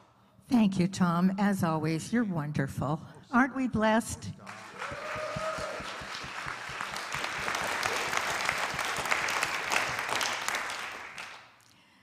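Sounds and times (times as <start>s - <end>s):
crowd applauding: 4.4s - 11.7s.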